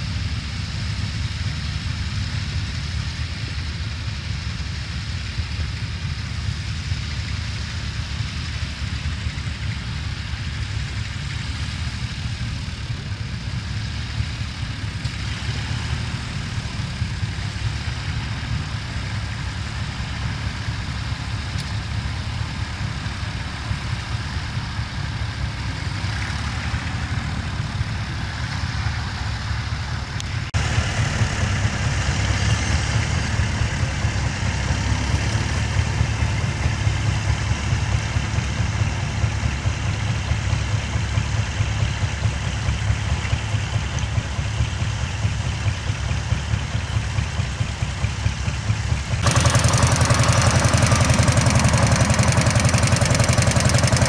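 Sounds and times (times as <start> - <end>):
tractor engine chugging under load: 0.0 - 54.0.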